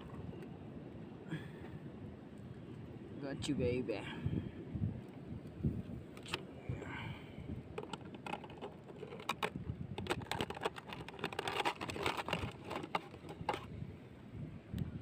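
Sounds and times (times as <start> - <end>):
plastic bottle crackling and clicking: 7.7 - 13.7.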